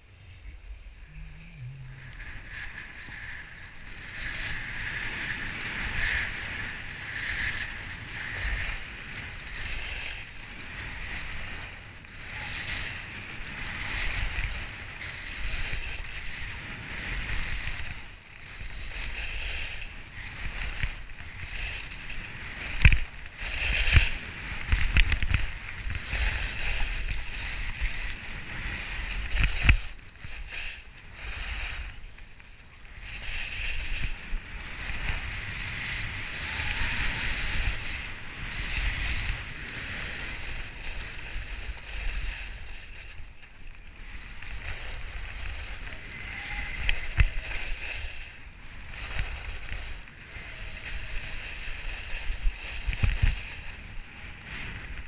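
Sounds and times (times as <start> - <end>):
wind buffeting microphone: 0.0 - 32.2
skis scraping over snow: 0.0 - 55.0.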